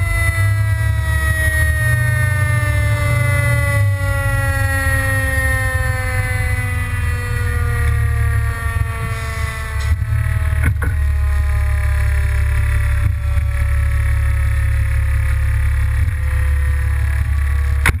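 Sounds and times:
diesel engine idling: 0.0 - 18.0
mechanical siren winding down: 0.0 - 18.0
sharp clicks and knocks: 17.1 - 18.0.

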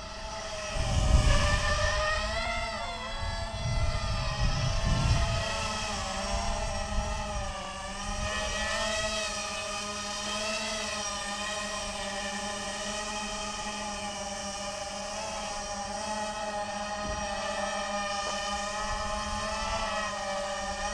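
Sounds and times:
wind rumbling on microphone: 0.0 - 9.3, 18.6 - 20.1
quadcopter motors whining: 0.0 - 20.9.

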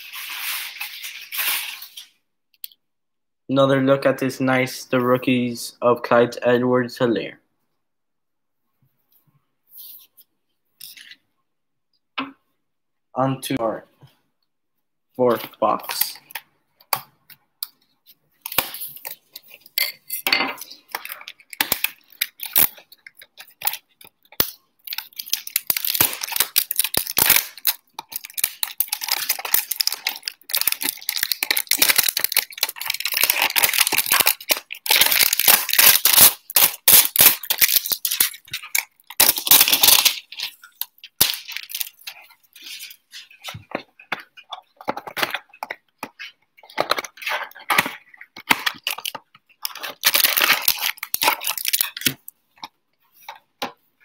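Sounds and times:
plastic shrink-wrap crinkling: 0.0 - 2.2, 20.6 - 52.4.

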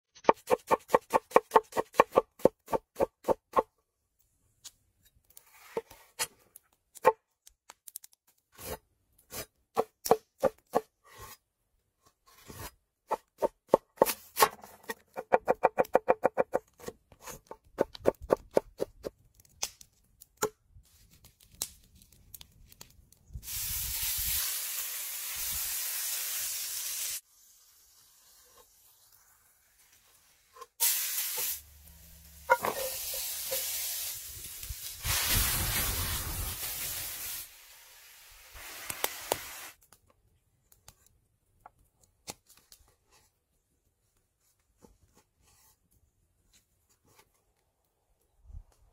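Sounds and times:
food sizzling in a hot pan: 23.4 - 30.1, 30.8 - 39.8.

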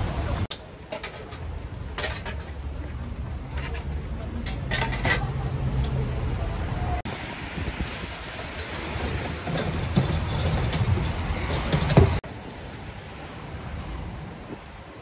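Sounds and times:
traffic on wet street: 0.0 - 15.0.

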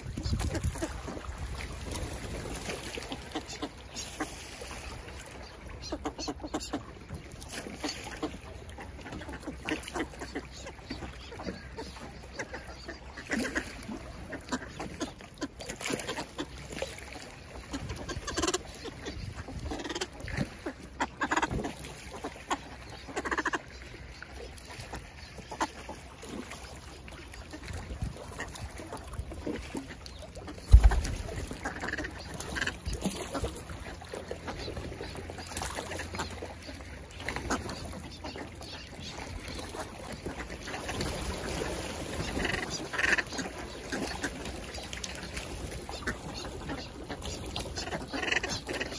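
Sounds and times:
ducks calling: 5.4 - 6.9, 17.6 - 23.8, 29.6 - 41.0, 42.2 - 44.4, 45.8 - 48.9.

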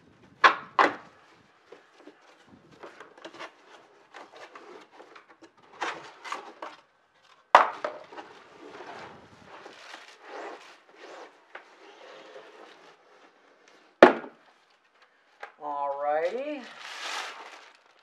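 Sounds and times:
cardboard flaps rustling: 0.2 - 15.0, 16.3 - 18.0
cardboard box tearing: 8.1 - 13.1, 16.7 - 18.0.

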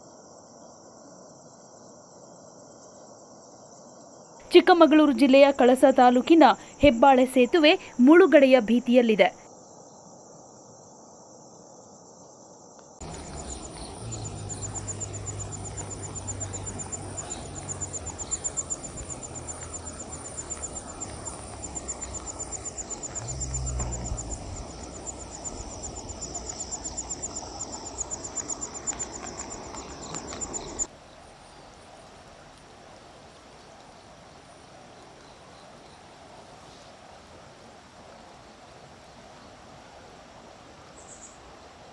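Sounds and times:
insects trilling: 0.0 - 32.2
low rumble: 13.0 - 30.9
flooded river rushing: 13.0 - 34.9.

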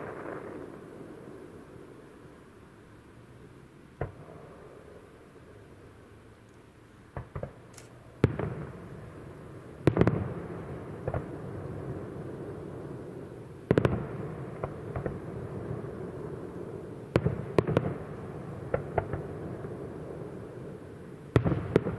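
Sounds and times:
small firework pops: 4.0 - 4.4, 7.1 - 8.8, 9.8 - 10.3, 11.0 - 11.3, 13.7 - 15.2, 18.7 - 19.3.

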